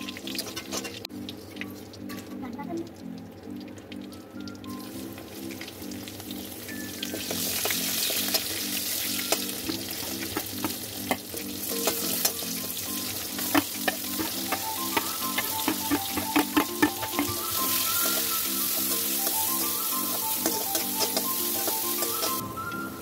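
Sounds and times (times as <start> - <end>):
vegetables sizzling in hot oil: 4.7 - 23.0.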